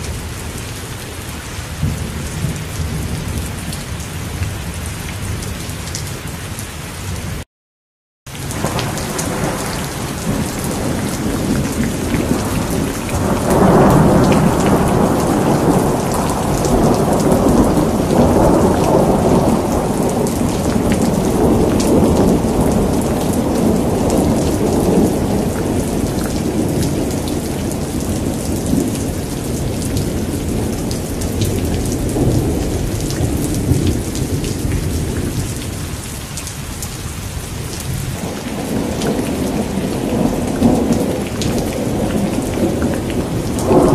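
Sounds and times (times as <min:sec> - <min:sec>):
steady rain: 0:00.0 - 0:07.4, 0:08.3 - 0:43.9
thunder rolling: 0:08.5 - 0:35.6, 0:38.1 - 0:43.9.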